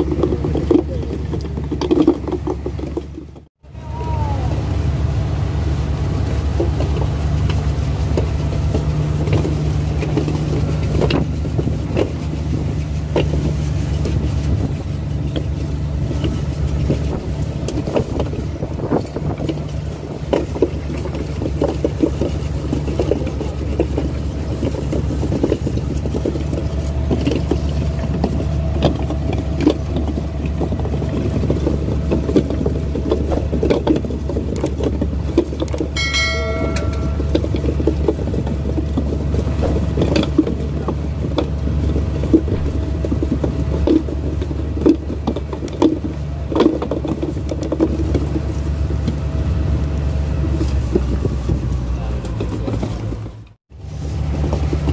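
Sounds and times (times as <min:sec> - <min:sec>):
knocks and clatter: 0:00.0 - 0:03.6, 0:06.5 - 0:49.2
boat engine humming: 0:00.0 - 0:54.9
high-pitched tone: 0:36.0 - 0:37.9.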